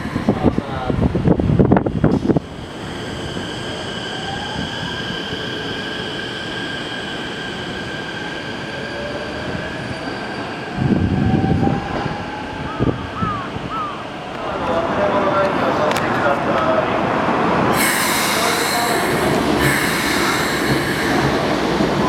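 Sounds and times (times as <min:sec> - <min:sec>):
train traction motors whining: 0:17.8 - 0:22.0.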